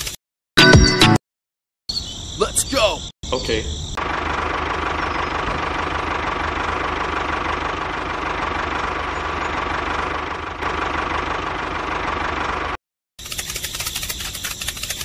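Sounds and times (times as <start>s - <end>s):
small engine rattling: 4.0s - 15.0s.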